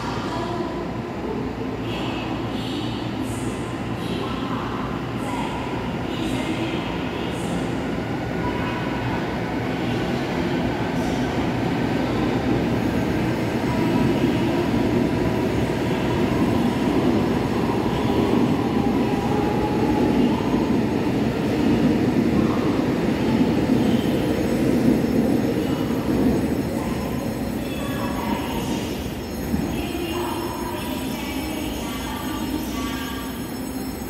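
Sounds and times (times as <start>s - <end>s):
faint train whine: 0.0s - 34.0s.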